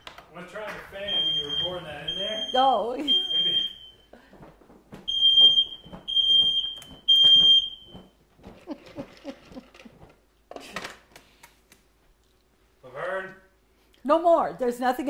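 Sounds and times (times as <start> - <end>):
smoke alarm beeping: 1.0 - 4.2, 5.1 - 8.2.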